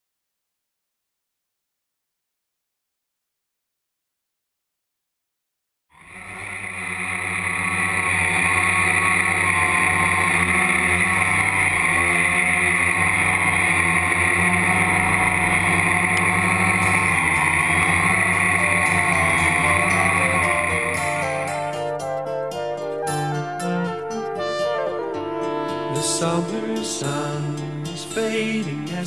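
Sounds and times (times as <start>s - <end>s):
quadcopter motors whining: 6.0s - 22.1s.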